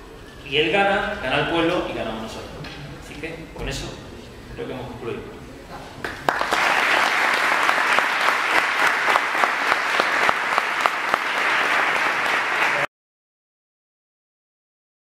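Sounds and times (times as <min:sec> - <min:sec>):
audience applause: 0:06.0 - 0:12.9.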